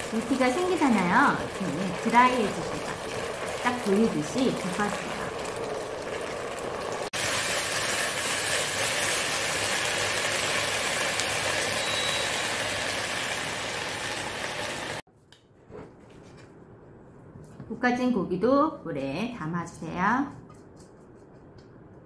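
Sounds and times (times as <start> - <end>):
beef sizzling in a wok: 0.0 - 15.0.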